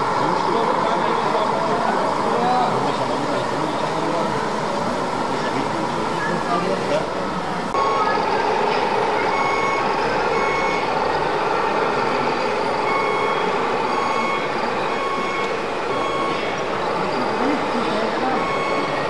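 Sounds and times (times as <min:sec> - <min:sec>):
hall noise: 0:00.0 - 0:19.0
reversing beeper short beeps: 0:07.8 - 0:08.3, 0:09.2 - 0:11.0, 0:12.6 - 0:19.0.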